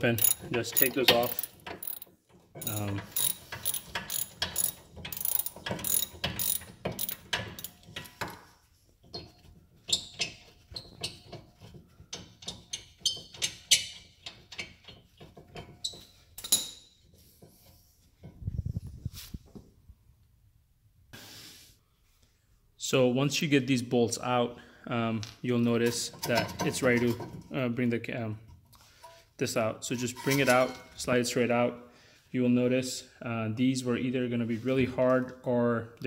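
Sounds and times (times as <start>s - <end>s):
hand ratchet clicking: 0.0s - 7.9s.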